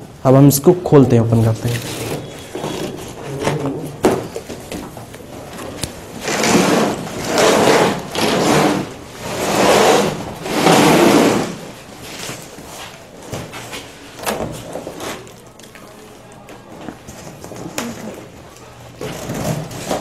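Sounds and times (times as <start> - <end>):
packing tape tearing off: 19.0 - 20.0.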